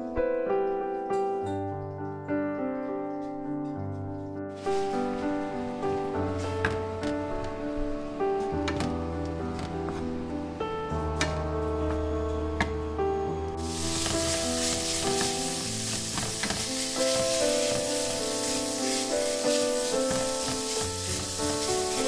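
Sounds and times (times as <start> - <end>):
meat sizzling in a pan: 4.6 - 7.2, 13.6 - 22.0.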